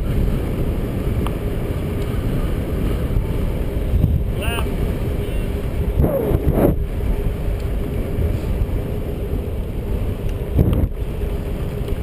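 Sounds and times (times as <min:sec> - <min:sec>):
tyre and road rumble: 0:00.0 - 0:12.0
wind rushing over microphone: 0:00.0 - 0:12.0
steady hum: 0:02.4 - 0:10.0.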